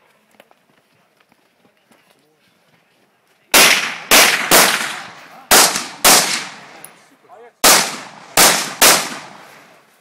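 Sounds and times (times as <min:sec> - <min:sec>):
rifle shots: 0:03.5 - 0:06.9, 0:07.6 - 0:09.8.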